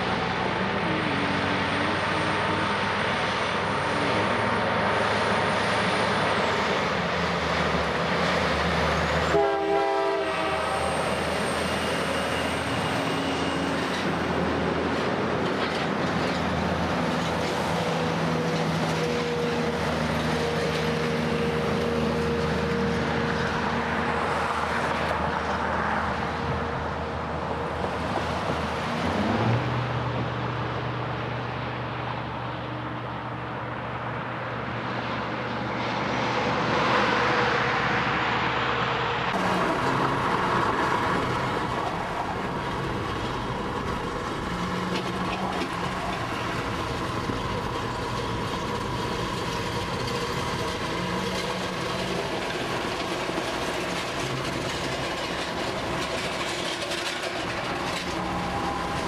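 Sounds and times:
car road noise: 0.0 - 59.0
diesel truck engine droning: 37.1 - 59.0.

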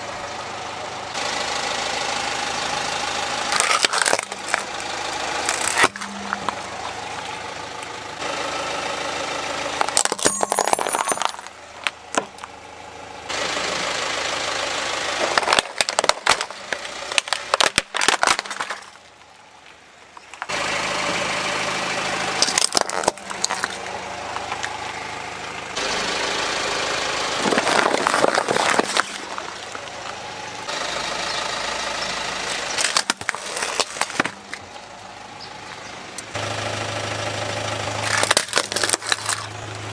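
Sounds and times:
car running at low speed: 0.0 - 39.9
plastic toys crunching under tyre: 3.4 - 7.3, 9.8 - 12.6, 15.1 - 20.6, 22.4 - 24.8, 27.3 - 30.2, 32.4 - 34.7, 37.9 - 39.8.

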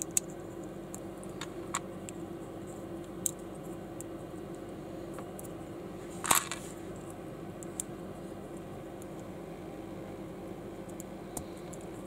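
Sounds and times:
background hum: 0.0 - 12.0.

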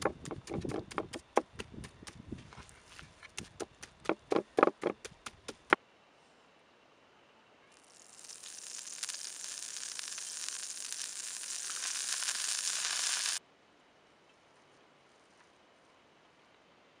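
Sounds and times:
oil sizzling and crackling: 7.8 - 13.4.

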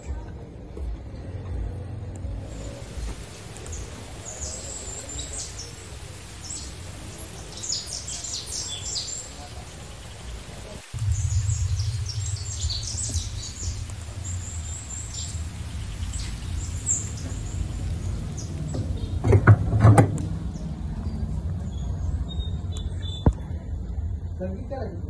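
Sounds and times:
steady low rumble: 0.1 - 25.0
small birds chirping: 2.4 - 23.7
loud knocks: 18.7 - 20.4.

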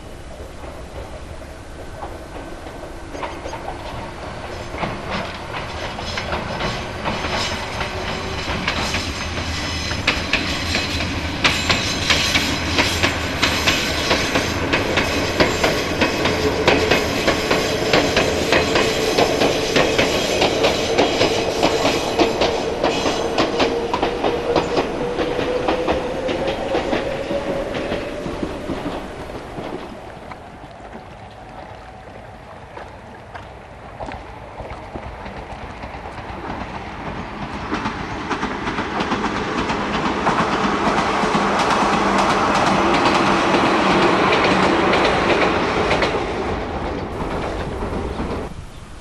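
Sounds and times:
train wheels clattering over rails: 0.0 - 31.6, 34.2 - 48.6.

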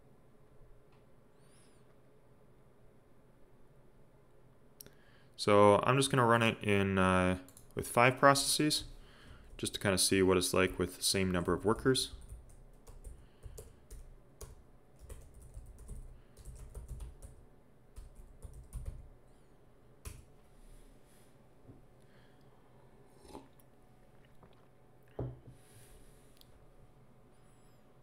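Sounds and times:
typing on computer keyboard: 12.0 - 17.4, 18.0 - 19.1.

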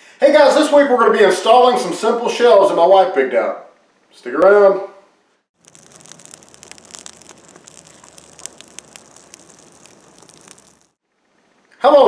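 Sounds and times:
fire crackling and popping: 5.6 - 11.0.

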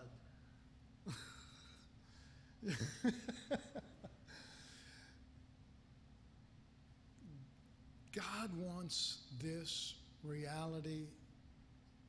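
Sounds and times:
man chuckling: 1.1 - 1.8, 2.6 - 4.6.

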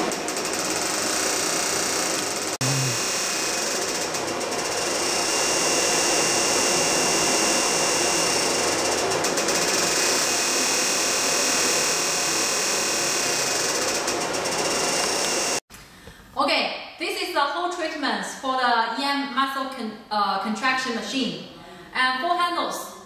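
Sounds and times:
dense mechanical buzz: 0.0 - 15.6.

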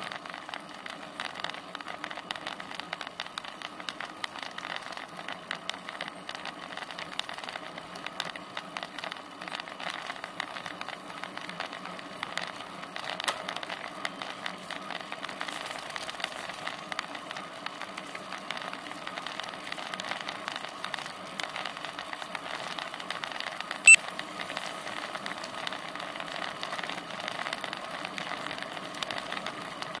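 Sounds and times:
bike tyres and wind hum: 0.0 - 30.0.

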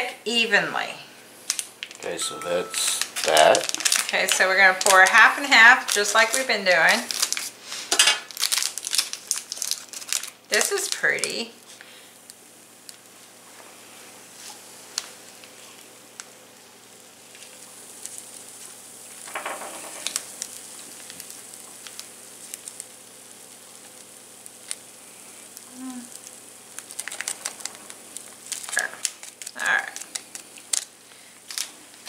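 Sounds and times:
plastic packet crinkling: 1.4 - 7.6, 8.2 - 11.6, 17.3 - 25.0, 25.6 - 32.0
quick crackles: 8.3 - 11.4, 23.8 - 32.0.

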